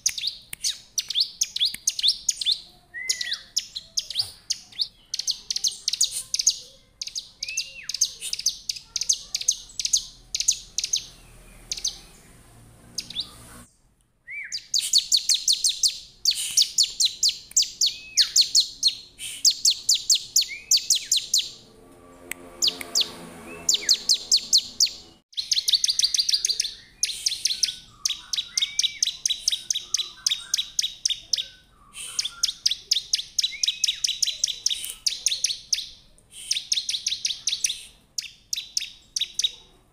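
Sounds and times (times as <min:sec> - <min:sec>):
bird ticking chirps: 0:00.0 - 0:13.4, 0:14.4 - 0:21.6, 0:22.2 - 0:39.6
bird downward-slurred whistle: 0:14.3 - 0:21.6, 0:22.4 - 0:30.7, 0:31.8 - 0:35.2.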